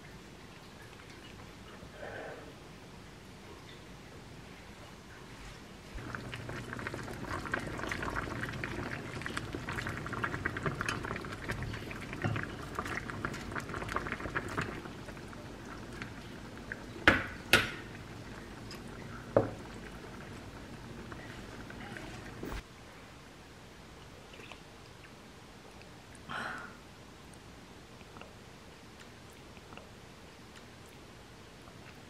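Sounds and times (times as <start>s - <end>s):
soup bubbling at a boil: 6.0s - 22.4s.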